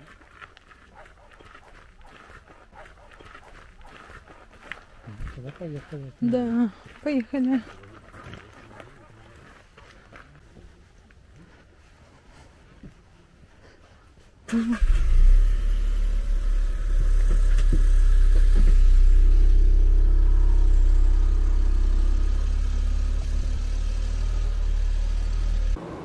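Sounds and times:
car driving on road: 14.8s - 26.0s.

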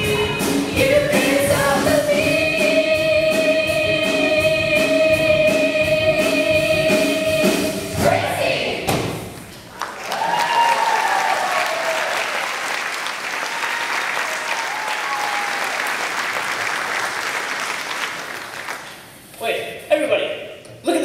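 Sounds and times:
audience applauding: 9.7s - 19.2s
voices cheering: 10.0s - 12.6s, 13.3s - 16.2s.

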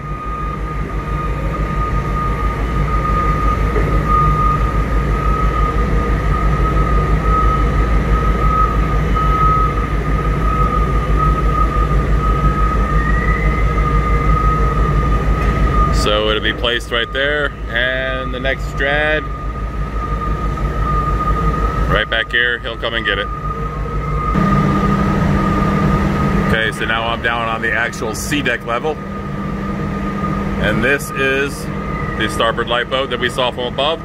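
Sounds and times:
gantry crane mechanical drone: 0.0s - 34.0s
high-pitched whine: 0.0s - 34.0s.

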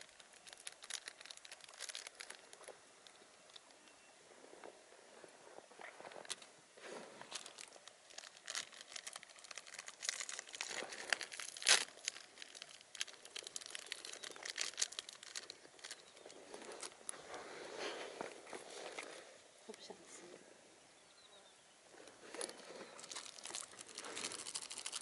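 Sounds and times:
snack wrapper crinkling: 0.0s - 3.7s, 7.3s - 17.2s, 22.4s - 25.0s.

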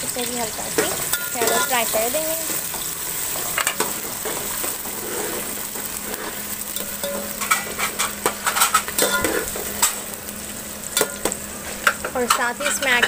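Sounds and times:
onions sizzling in oil: 0.0s - 13.0s
metal ladle scraping a pot: 2.6s - 9.9s.

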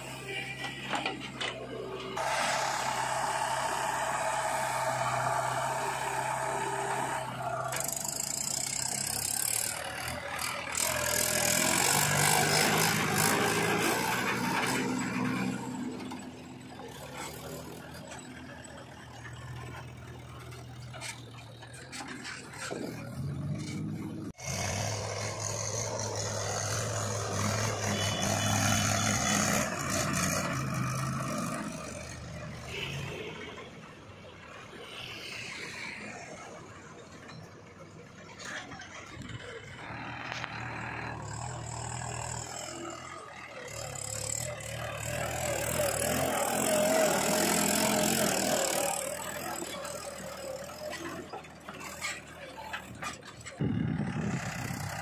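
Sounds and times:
tractor diesel engines under load: 0.0s - 55.0s
loaded trolley rattling and scraping: 42.4s - 55.0s.

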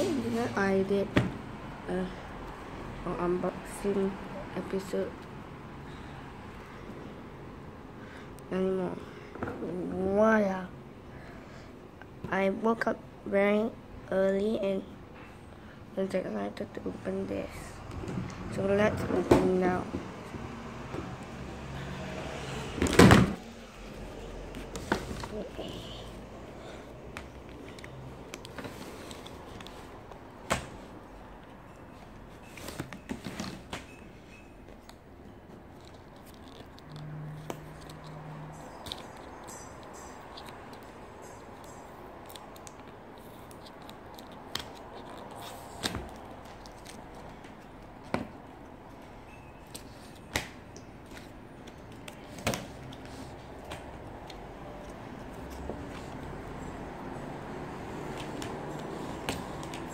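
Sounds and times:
packaging clicks and handling: 34.7s - 56.3s.

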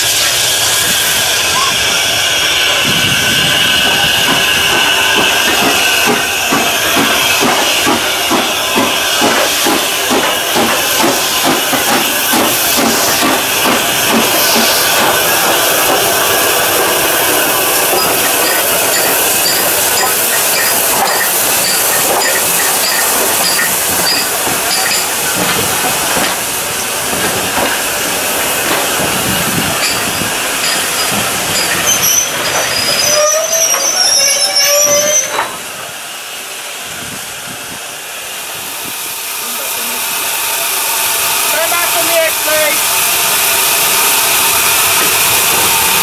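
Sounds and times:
high wheel squeal: 0.0s - 9.7s, 14.3s - 15.5s, 16.8s - 25.5s, 29.2s - 35.6s
steam hiss: 0.0s - 46.0s
carriage wheels clicking on rails: 17.9s - 27.8s.

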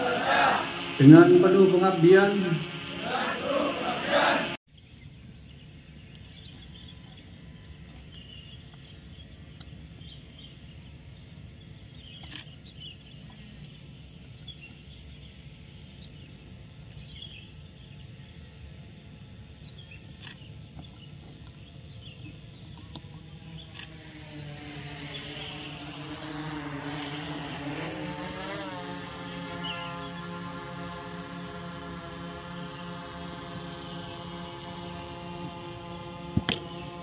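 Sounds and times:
outdoor background noise: 0.0s - 37.0s
bird chirps: 29.3s - 30.2s.

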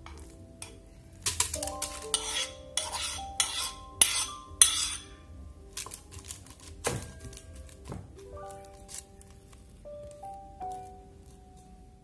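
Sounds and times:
metal fork scraping a bowl: 0.6s - 5.2s.

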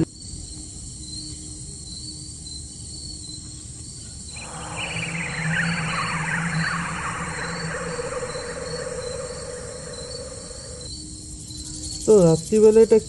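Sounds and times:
crickets chirring: 4.3s - 12.6s
falling sweeps: 4.4s - 10.9s
steady low hum: 4.4s - 10.9s.

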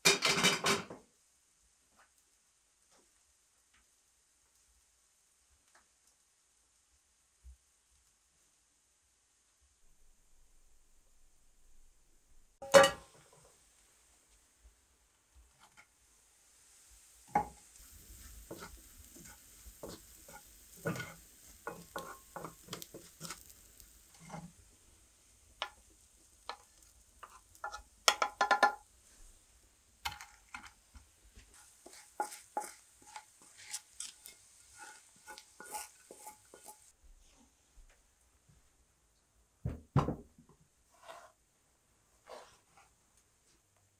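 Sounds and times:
light sizzling: 0.0s - 39.4s
spoon scraping frying pan: 12.6s - 13.2s, 17.1s - 24.8s, 25.4s - 29.3s, 30.0s - 37.0s, 40.9s - 41.4s, 42.2s - 42.9s.

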